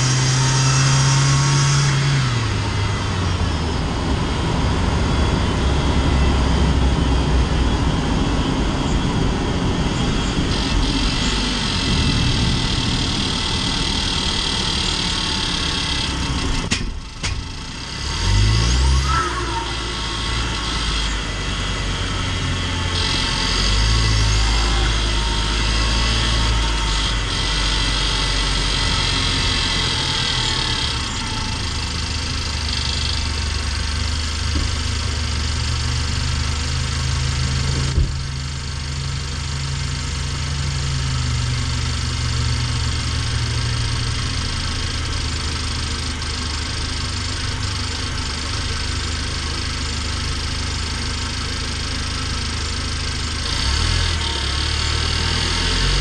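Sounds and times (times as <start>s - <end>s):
high turbo whistle: 0.0s - 16.6s, 17.7s - 33.5s
van engine drone: 0.0s - 56.0s.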